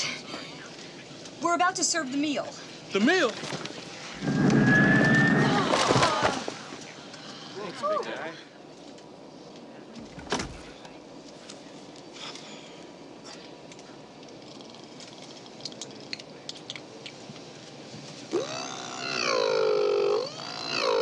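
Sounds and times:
airliner cabin hum: 3.4s - 7.1s.

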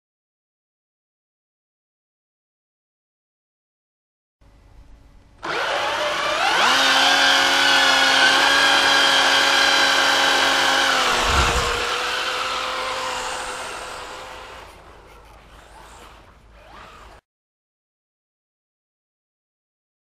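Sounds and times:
electric motor whining: 5.4s - 17.2s.

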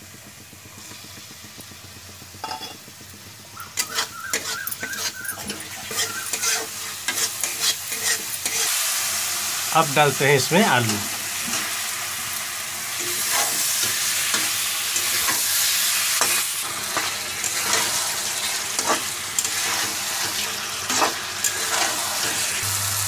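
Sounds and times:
potato wedges sizzling in oil: 0.0s - 23.0s
metal spatula scraping a pan: 3.8s - 9.0s, 13.0s - 22.6s.

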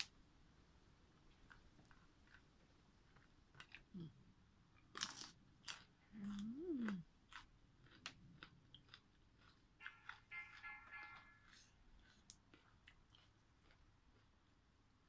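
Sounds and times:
chewing and crunching: 1.2s - 14.8s
person humming mmm: 4.0s - 4.2s, 6.1s - 7.1s.

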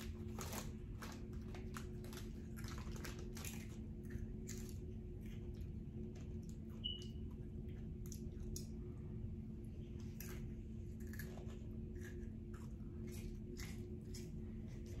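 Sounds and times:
chewing crunchy chips: 0.0s - 8.9s, 10.0s - 15.0s
steady low hum: 0.0s - 15.0s.

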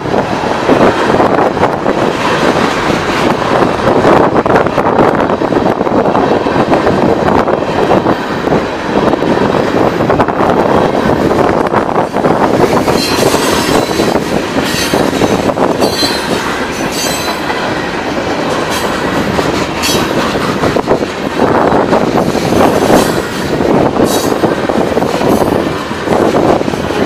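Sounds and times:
train wheels rumbling on rail: 0.0s - 27.0s
clacks over rail joints: 11.1s - 27.0s
high wheel squeals: 12.8s - 17.4s.

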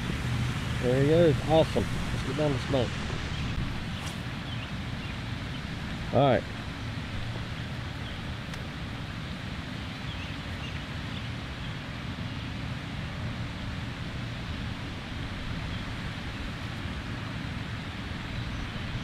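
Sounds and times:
low rumble: 0.0s - 4.0s.

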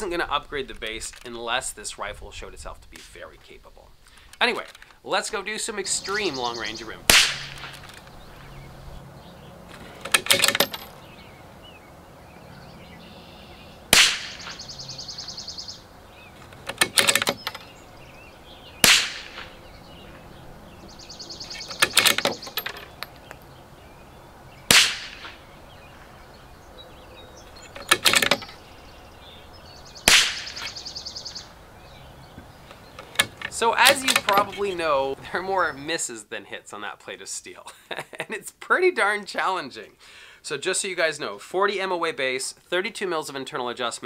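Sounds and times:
rifle shots: 7.0s - 8.0s, 13.9s - 14.6s, 18.8s - 19.6s, 24.7s - 25.4s, 30.1s - 30.7s
rifle bolt metallic clicks: 9.8s - 10.9s, 16.4s - 17.7s, 21.6s - 23.4s, 27.7s - 28.6s, 33.0s - 34.6s.

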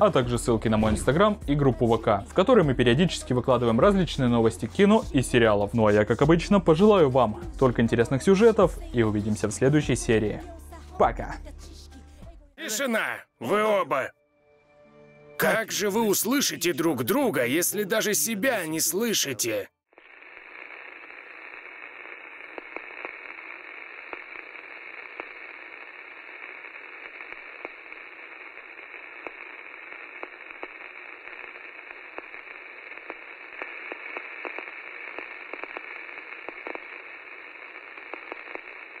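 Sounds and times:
static hiss: 15.4s - 39.0s
crackles and pops: 19.0s - 39.0s.

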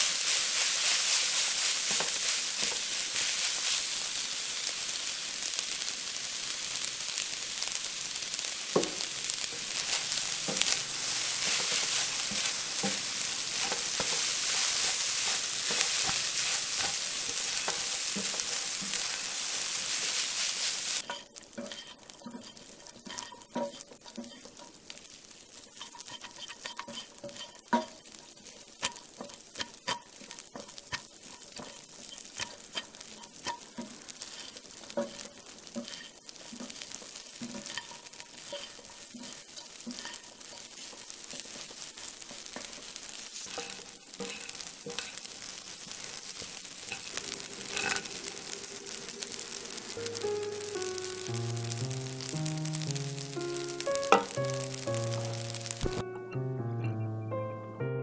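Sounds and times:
spatula scraping a pan: 0.0s - 4.8s, 7.1s - 50.3s
rice sizzling in a wok: 0.0s - 56.6s.

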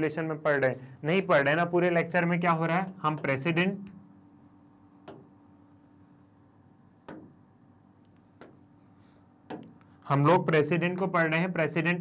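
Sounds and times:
faint steady hum: 0.0s - 12.0s
pen tapping on screen: 4.9s - 5.3s, 7.0s - 7.4s, 8.2s - 8.7s, 9.4s - 9.8s.

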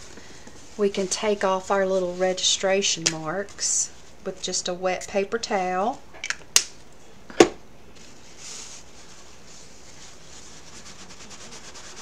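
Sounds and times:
paper towel scrubbing surface: 0.0s - 4.4s, 8.0s - 12.0s.

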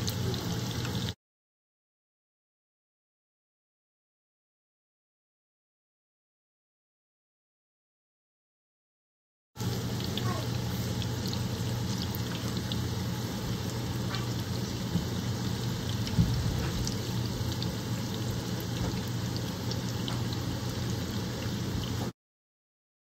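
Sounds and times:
batter deep-frying in hot oil: 0.0s - 1.2s, 9.6s - 22.2s.

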